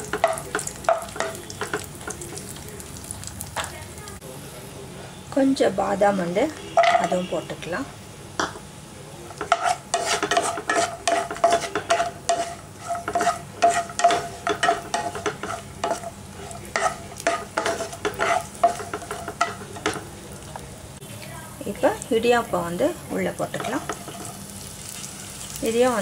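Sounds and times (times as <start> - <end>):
light sizzle of frying: 0.0 - 26.0
wooden spatula scraping a pan: 9.4 - 20.0, 23.5 - 24.4.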